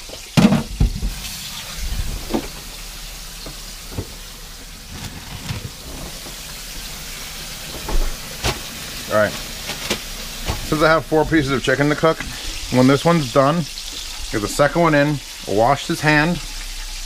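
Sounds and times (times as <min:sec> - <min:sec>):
kitchen clunks and rattles: 0:00.0 - 0:02.8, 0:03.4 - 0:06.5, 0:07.6 - 0:10.9
chicken frying in oil: 0:00.0 - 0:17.0
plastic bag rustling: 0:00.8 - 0:12.8.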